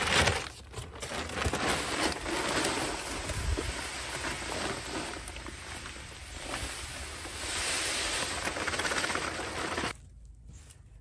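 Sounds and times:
seed pouring into hopper: 1.2s - 9.9s.

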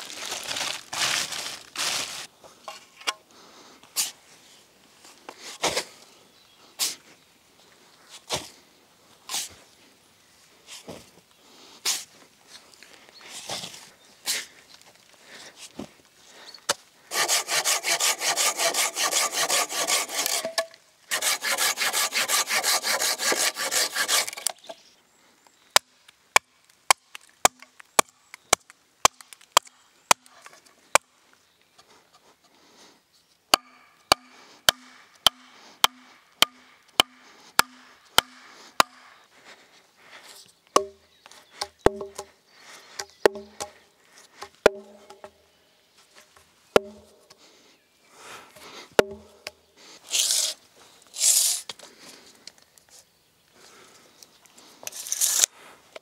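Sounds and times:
hatchet chopping wood: 17.1s - 24.6s, 25.8s - 31.1s, 33.5s - 39.1s, 40.8s - 41.0s, 41.6s - 42.3s, 43.0s - 43.8s, 44.4s - 45.4s, 46.7s - 47.2s, 49.0s - 49.3s
hand saw cutting wood: 17.1s - 24.7s, 33.6s - 39.0s, 50.1s - 51.7s.

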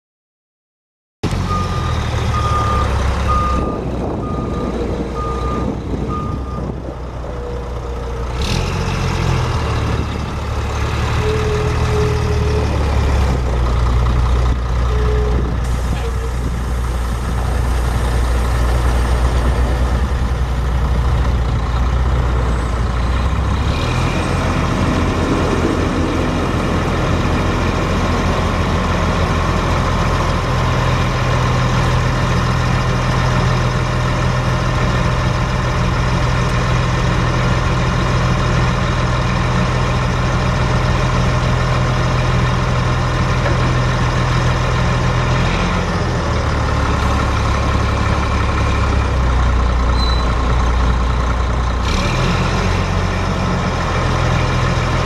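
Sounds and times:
diesel truck engine running: 1.2s - 55.0s
high reversing beeps: 1.5s - 6.8s.

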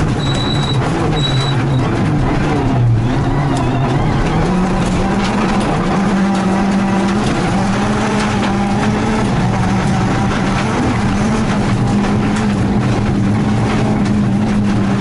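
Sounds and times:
car engine revving hard: 0.0s - 15.0s
gravel striking car body: 3.8s - 15.0s.

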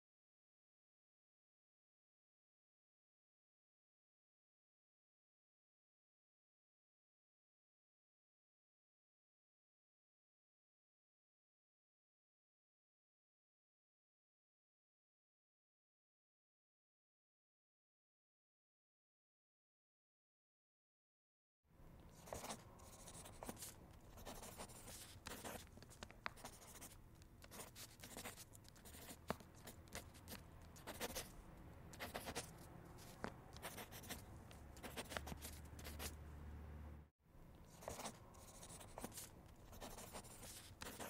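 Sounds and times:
pen scratching on paper: 22.0s - 36.2s, 37.6s - 41.0s.

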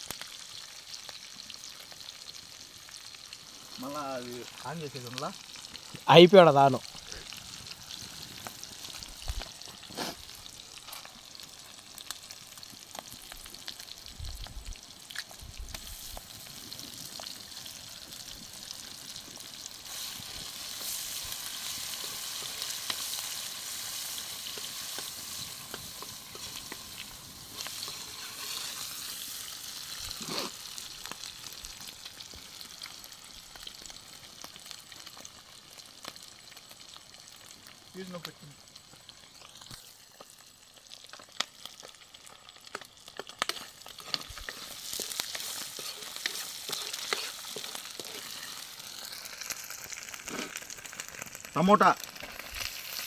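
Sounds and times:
onions sizzling in hot oil: 0.0s - 53.0s
metal spoon scraping pan: 27.6s - 29.0s, 43.5s - 48.6s.

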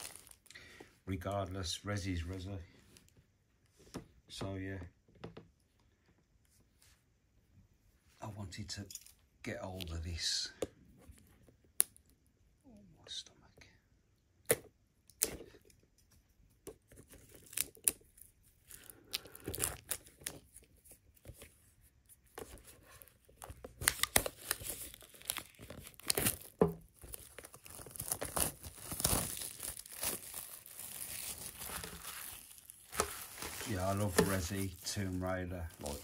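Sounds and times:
plastic packaging crinkling: 0.0s - 0.5s, 22.4s - 36.0s.

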